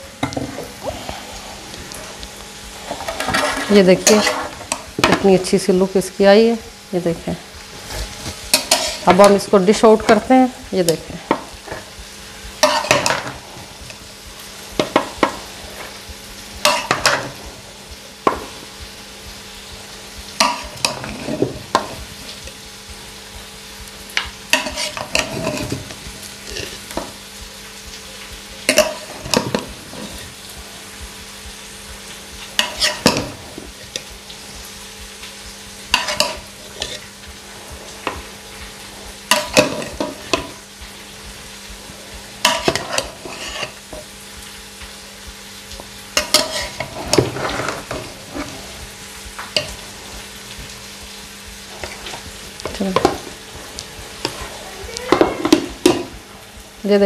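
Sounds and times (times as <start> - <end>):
metal spoon scraping a pot: 24.5 - 25.8, 32.6 - 33.3, 42.5 - 43.8, 46.2 - 48.6.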